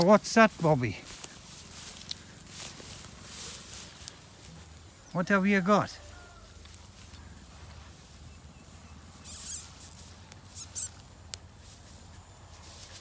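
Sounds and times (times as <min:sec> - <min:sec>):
mouse squeaking: 0:09.1 - 0:11.0.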